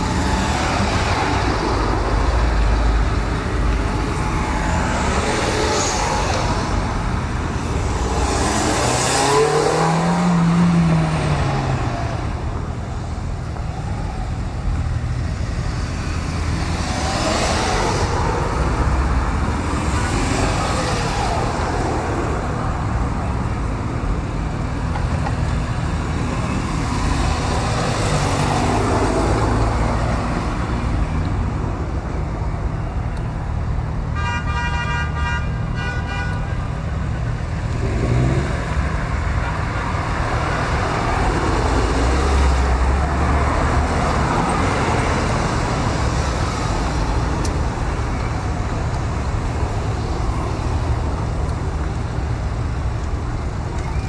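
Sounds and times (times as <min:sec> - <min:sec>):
cars driving past: 0:00.0 - 0:32.8, 0:37.1 - 0:54.0
car horn tooting: 0:34.2 - 0:36.6.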